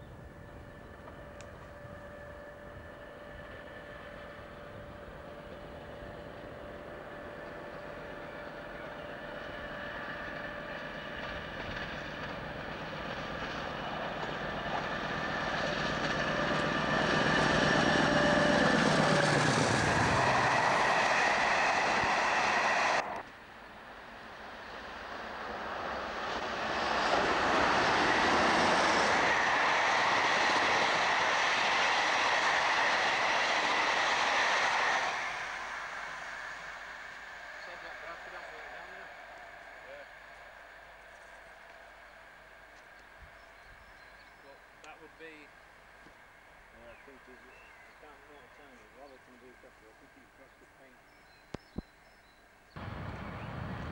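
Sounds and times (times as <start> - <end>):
train wheels rumbling on rails: 0.0 - 23.2
diesel locomotive passing: 0.0 - 53.9.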